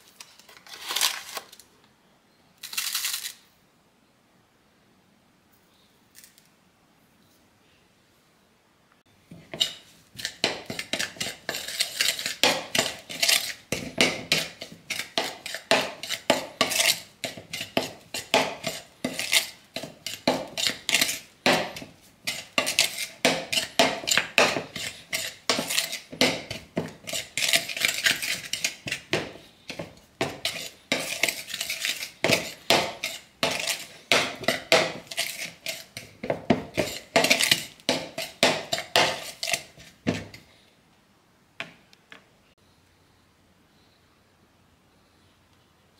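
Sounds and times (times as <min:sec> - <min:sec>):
metal spoon scraping bowl: 0:09.3 - 0:40.5.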